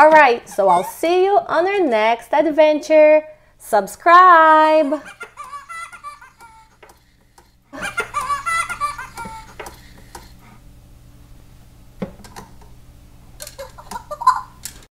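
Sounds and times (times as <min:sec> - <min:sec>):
toy chattering and giggling: 0:05.1 - 0:07.1, 0:07.8 - 0:10.4, 0:13.4 - 0:14.6.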